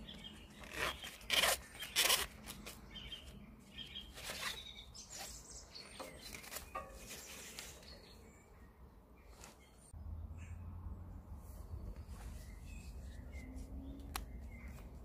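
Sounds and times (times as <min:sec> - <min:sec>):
webbing strap sliding through buckle: 0:00.5 - 0:02.8
bird chirps: 0:02.8 - 0:10.7, 0:11.6 - 0:15.0.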